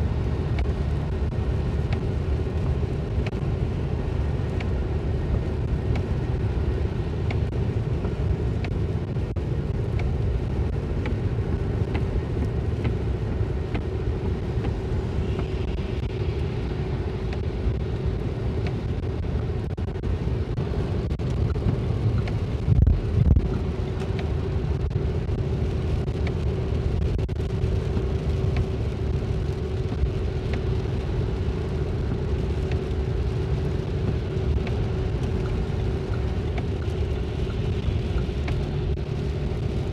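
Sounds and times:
road and engine rumble: 0.0 - 39.9
tyre noise on wet road: 0.0 - 39.9.

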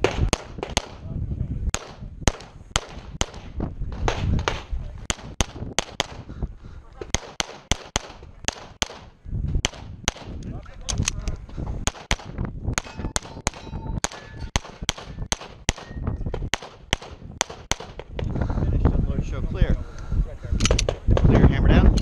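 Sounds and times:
pistol shots: 0.0 - 1.0, 1.7 - 6.3, 7.0 - 10.4, 11.8 - 18.1
bullets ringing on steel plates: 12.8 - 16.1.

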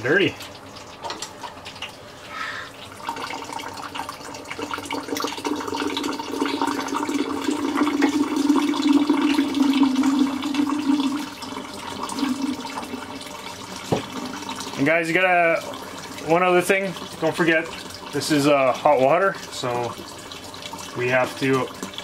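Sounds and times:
water pouring into plastic tub: 2.9 - 22.0.

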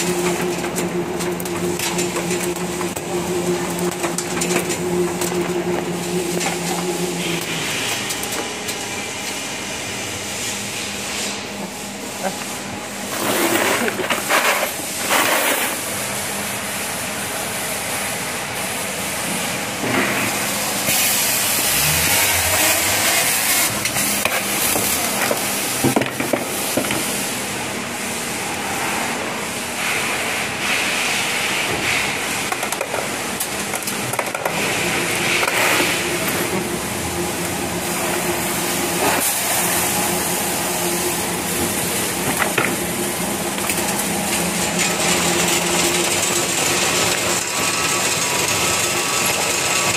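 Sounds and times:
sorting machine hiss: 5.8 - 8.2, 8.9 - 25.8, 34.6 - 49.9
low motor hum: 21.2 - 24.2.

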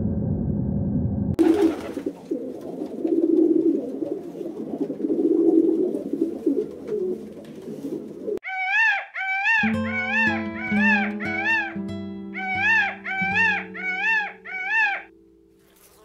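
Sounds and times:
pigeon cooing: 1.4 - 16.0
higher rising and falling call: 8.4 - 15.2.

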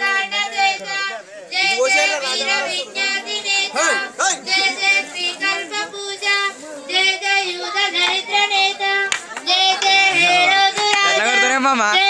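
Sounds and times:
high-pitched voices singing: 0.0 - 12.0.

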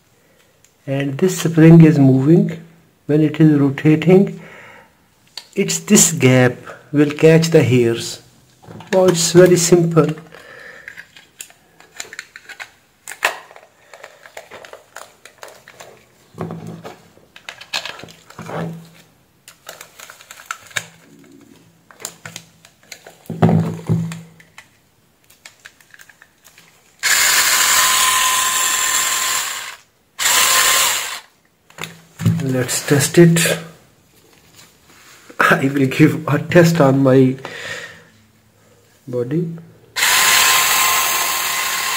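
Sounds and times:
loud steady whirring: 27.0 - 31.3, 40.0 - 41.9.

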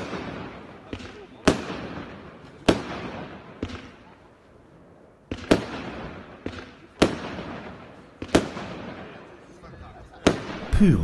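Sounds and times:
quieter firework pops: 0.0 - 4.1, 5.3 - 9.1.

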